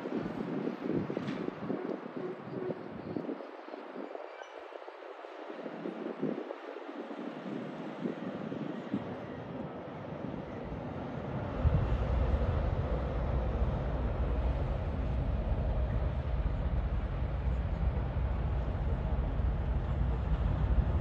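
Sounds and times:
deep engine rumble: 11.4s - 21.0s.

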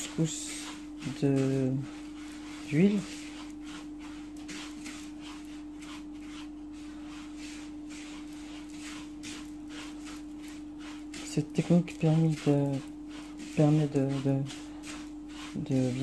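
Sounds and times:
hands rubbing grains in bowl: 0.0s - 16.0s
steady hum: 0.0s - 16.0s.

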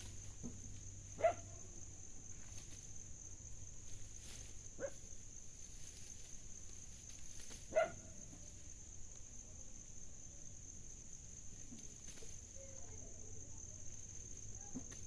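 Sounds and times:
dog barking: 1.2s - 1.5s, 7.7s - 8.1s.

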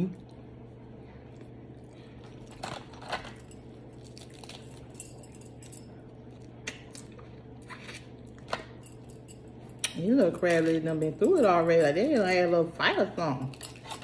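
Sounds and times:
steady low hum: 0.0s - 14.0s
aluminium foil crinkling: 2.2s - 5.3s.

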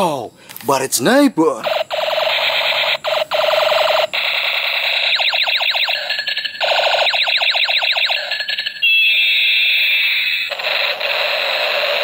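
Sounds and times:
toy gun buzzy rapid-fire: 1.7s - 12.0s
electronic falling pew sweeps: 4.8s - 8.5s.

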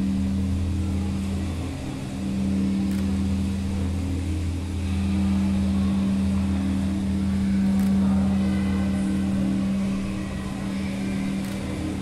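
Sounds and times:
deep drone: 0.0s - 12.0s
faint clicks: 2.9s - 3.2s, 7.6s - 8.0s, 11.3s - 11.8s.

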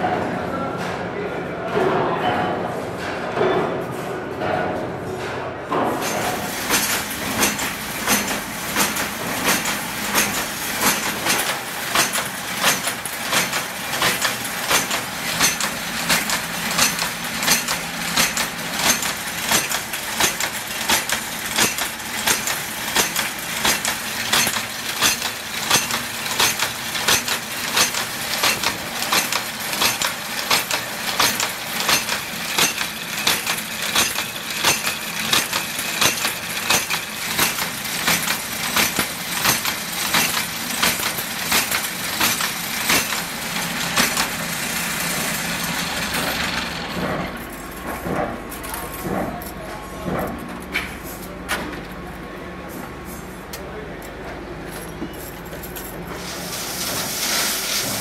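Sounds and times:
wire cutter clacking: 6.0s - 50.4s.

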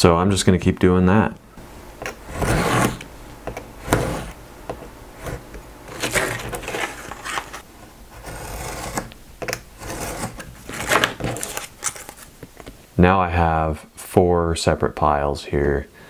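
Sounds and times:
knife scraping through paper: 2.3s - 3.0s, 3.9s - 4.4s, 5.2s - 7.6s, 8.2s - 9.1s, 9.8s - 12.3s.

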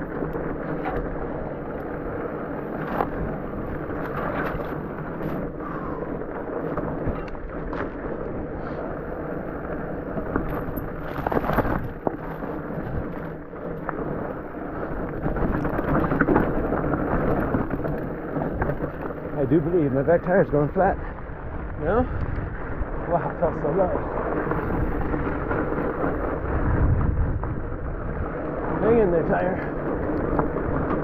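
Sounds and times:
bike knocks and rattles: 0.0s - 8.4s, 9.4s - 20.8s, 28.8s - 31.0s
bike tyres rumbling on dirt: 0.0s - 31.0s
wind buffeting microphone: 0.0s - 31.0s.

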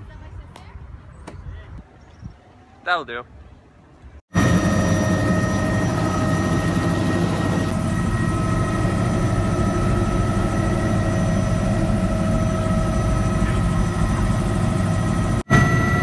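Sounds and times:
helicopter rumble: 4.3s - 16.0s
high whining tones: 4.4s - 16.0s.

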